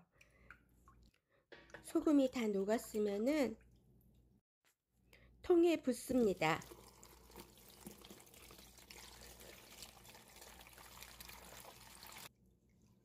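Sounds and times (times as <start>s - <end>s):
liquid pouring into container: 6.3s - 13.0s.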